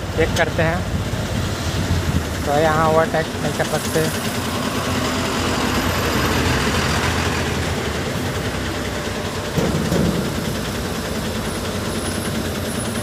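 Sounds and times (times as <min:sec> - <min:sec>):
diesel truck engines idling: 0:00.0 - 0:13.0.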